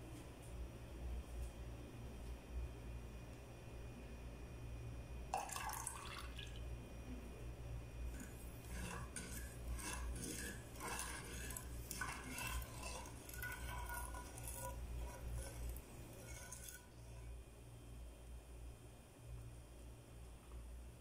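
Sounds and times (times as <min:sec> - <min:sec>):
metal spoon scraping saucepan: 0:08.1 - 0:17.3.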